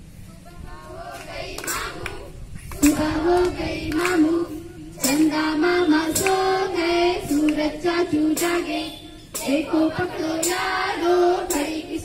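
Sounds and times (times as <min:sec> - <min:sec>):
girls singing in unison: 0:00.6 - 0:12.0
hand claps: 0:01.1 - 0:04.2, 0:05.0 - 0:05.4, 0:06.1 - 0:06.5, 0:07.4 - 0:07.6.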